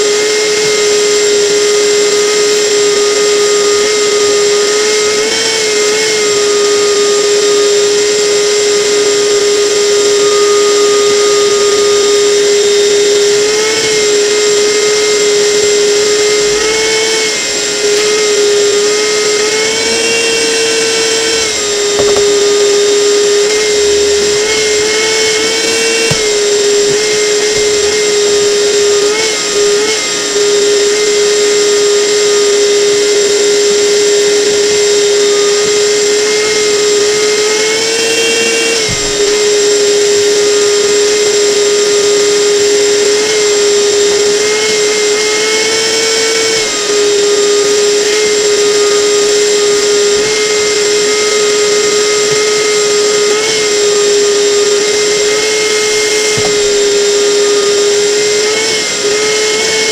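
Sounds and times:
power tool motor whining: 0.0 - 59.9.

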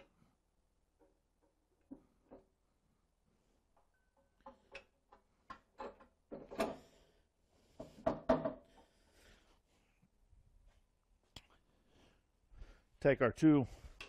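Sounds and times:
clunks and scrapes of metal table: 5.8 - 6.9.

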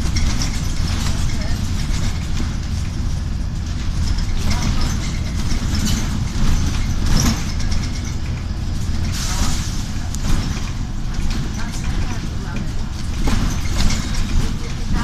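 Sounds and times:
bus diesel engine rumble: 0.0 - 15.0.

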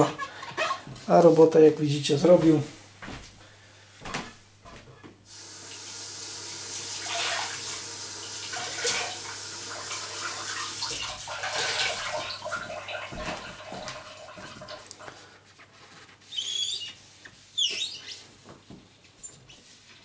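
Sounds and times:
water running: 5.3 - 15.3.

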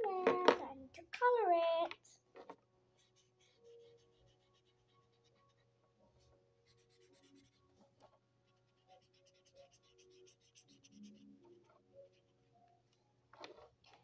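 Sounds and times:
marker scratching on paper: 3.0 - 8.0, 8.6 - 12.3.

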